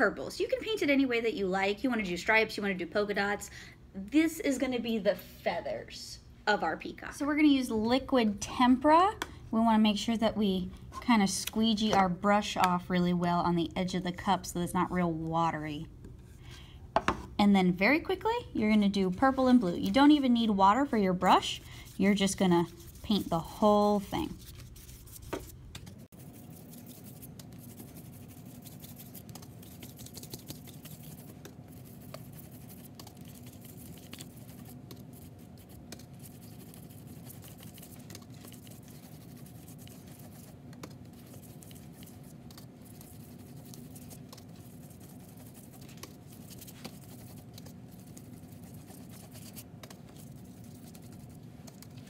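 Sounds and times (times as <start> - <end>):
low room hum: 0.0 - 52.0
paintbrush scratching on paper: 21.2 - 52.0.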